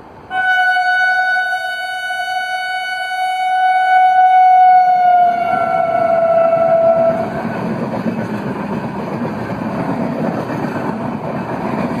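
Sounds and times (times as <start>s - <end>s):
locomotive horn blast: 0.3s - 7.3s.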